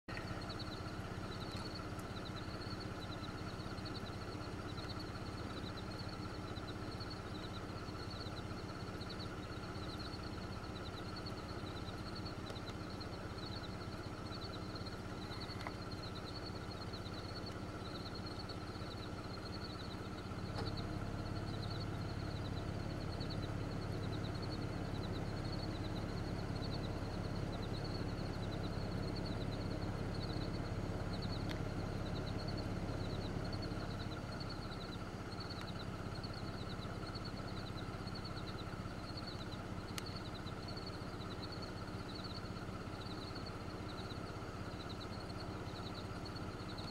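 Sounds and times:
high chirping: 0.1 - 46.9
steady low hum: 0.1 - 46.9.

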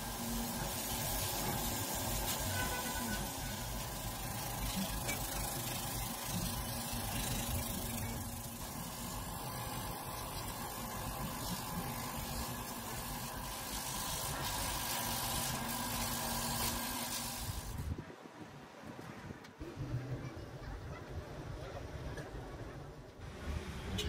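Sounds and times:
laser cutter hum with hiss: 0.0 - 17.8.

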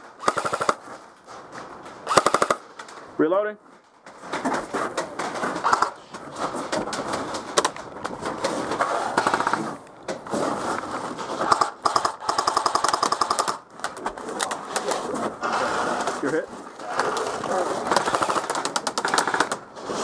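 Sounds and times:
airsoft rifle full-auto bursts: 0.2 - 0.8, 2.0 - 2.6, 8.9 - 9.7, 11.4 - 13.6, 16.9 - 19.6.

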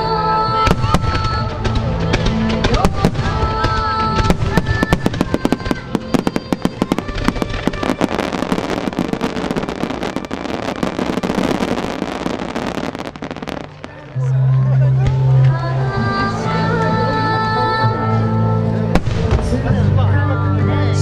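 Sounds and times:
music: 0.0 - 21.0
fireworks bursting: 0.7 - 14.4, 19.0 - 19.6
fireworks crackling: 0.7 - 15.5, 18.9 - 19.7.

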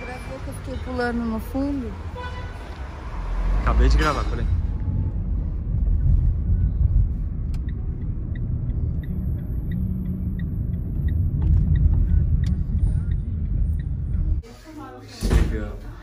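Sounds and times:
car cabin rumble: 5.6 - 14.4.

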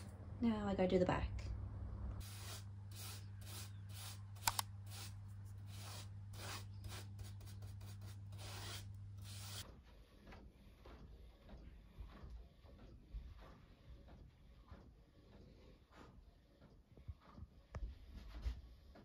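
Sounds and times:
steady low hum: 0.0 - 9.6
paintbrush strokes on wood: 2.2 - 9.6.

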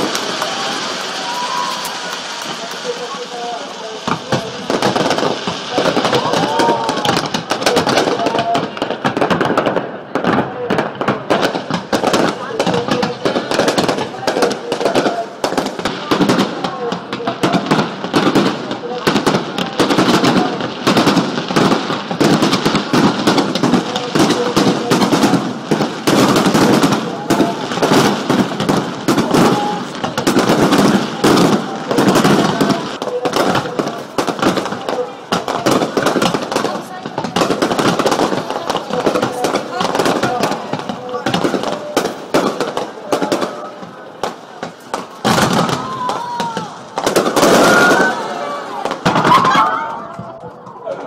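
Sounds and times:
fireworks bangs and crackles: 0.0 - 51.0.

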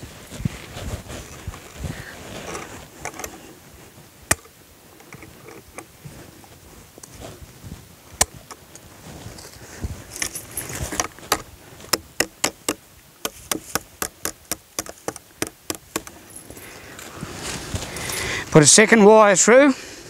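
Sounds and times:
chain and wire jingling against log: 9.1 - 18.5.

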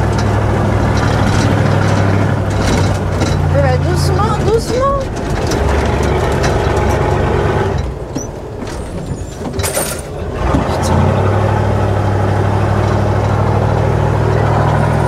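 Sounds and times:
knocks and rattles from bumps: 0.0 - 11.5
diesel truck engine running: 0.0 - 15.0.

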